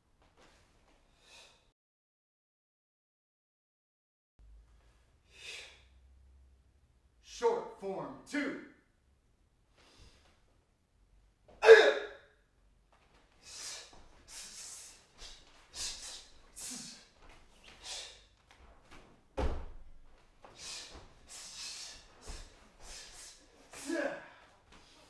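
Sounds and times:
sharp hissing exhalations: 5.3 - 5.9, 13.4 - 17.1, 17.7 - 18.2, 20.5 - 23.5
foot thump on floor mats: 18.6 - 20.3.

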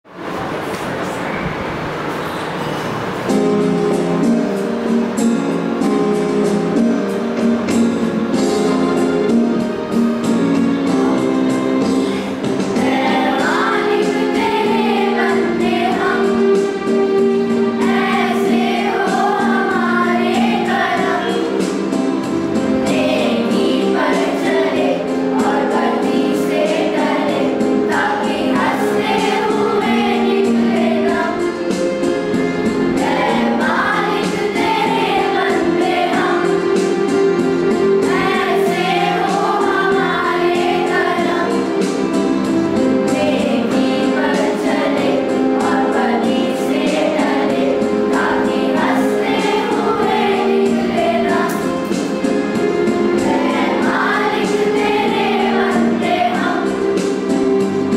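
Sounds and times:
girls singing in unison: 11.9 - 57.9.

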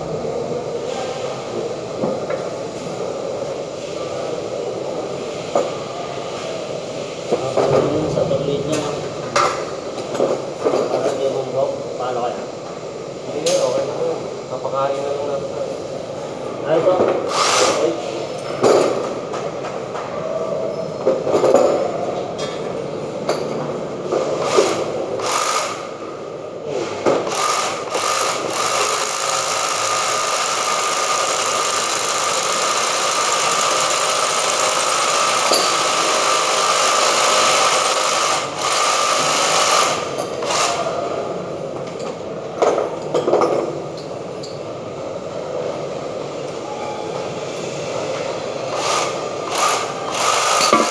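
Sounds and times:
electric drill boring into wall: 24.6 - 25.8, 27.3 - 40.8, 48.8 - 50.9.

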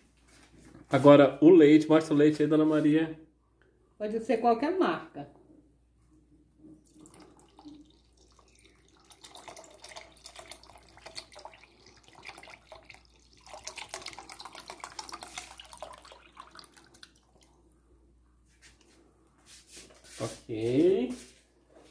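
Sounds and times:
milk pouring and splashing: 6.7 - 17.8.

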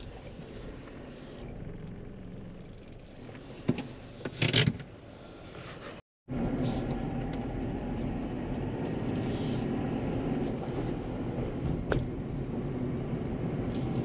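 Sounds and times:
car driving rumble: 0.0 - 14.0.

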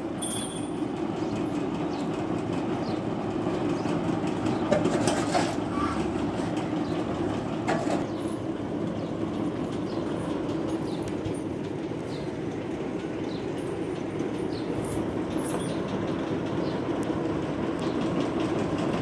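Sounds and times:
machine droning: 0.0 - 19.0.

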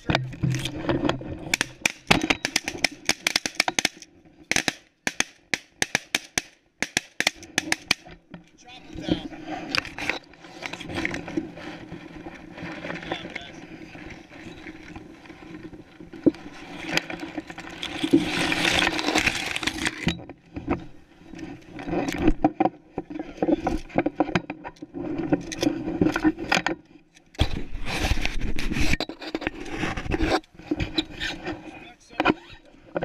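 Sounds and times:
dry grass rustling against microphone: 0.0 - 33.0.

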